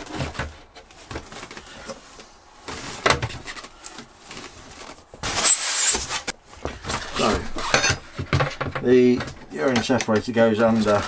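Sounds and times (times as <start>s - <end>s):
loud plastic scrape: 0.0s - 8.8s.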